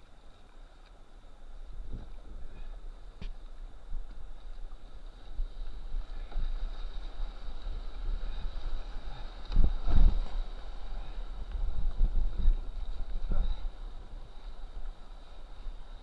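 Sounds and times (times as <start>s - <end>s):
wind buffeting microphone: 1.2s - 16.0s.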